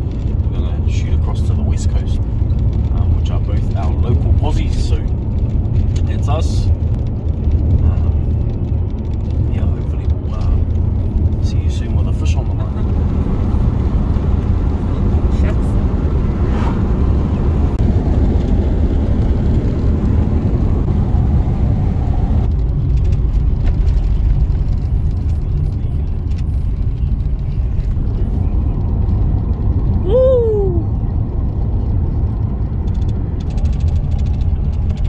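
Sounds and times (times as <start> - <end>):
car engine and tyre noise: 0.0 - 35.0.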